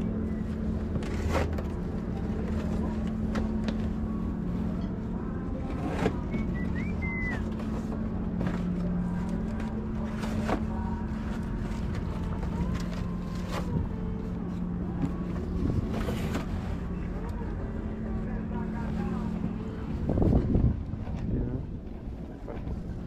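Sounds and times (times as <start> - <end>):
low motor hum: 0.0 - 23.0
high chirp: 6.4 - 7.5.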